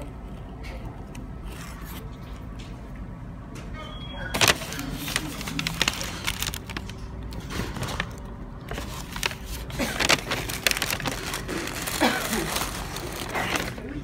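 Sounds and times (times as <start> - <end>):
paper wrapper rustling and crinkling: 4.3 - 14.0.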